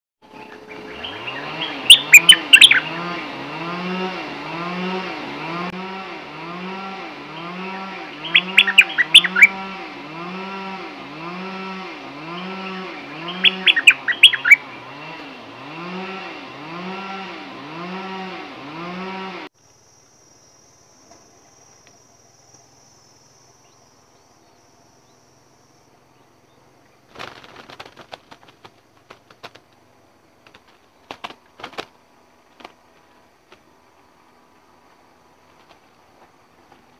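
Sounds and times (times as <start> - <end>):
bird chirps: 0.2 - 3.1, 7.3 - 9.8, 12.2 - 15.1, 20.4 - 27.1
chainsaw cutting trees: 0.3 - 19.6
bird fluttering wings in cage: 27.0 - 33.7, 35.4 - 36.9.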